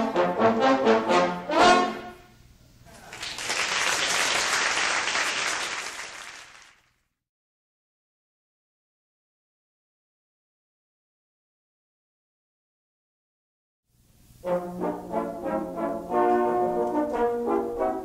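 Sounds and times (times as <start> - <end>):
trombone ensemble playing chords: 0.0 - 2.3, 14.2 - 18.0
audience applauding: 2.9 - 6.9.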